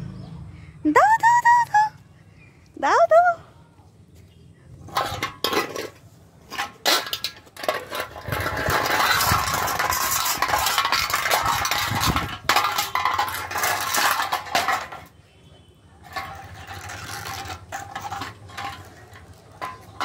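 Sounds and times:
metal can scraping on concrete: 4.8s - 15.2s, 16.0s - 20.0s.

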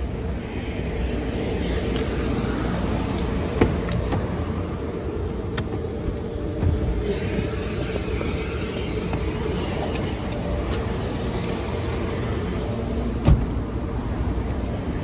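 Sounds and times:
vacuum machinery drone: 0.0s - 15.0s
thump: 13.2s - 13.5s.

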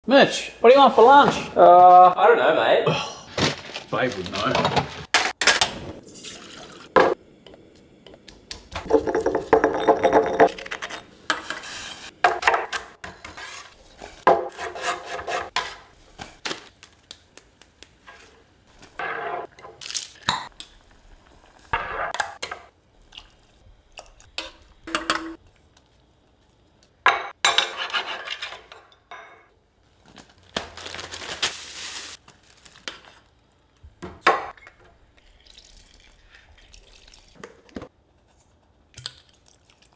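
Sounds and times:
pots and utensils clinking: 24.0s - 25.4s.

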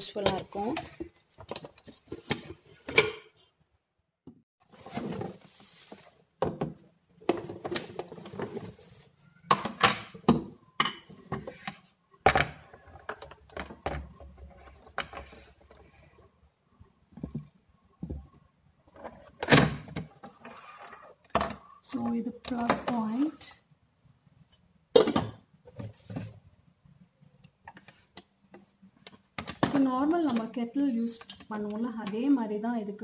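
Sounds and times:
cardboard rustling and scraping: 4.6s - 6.3s.

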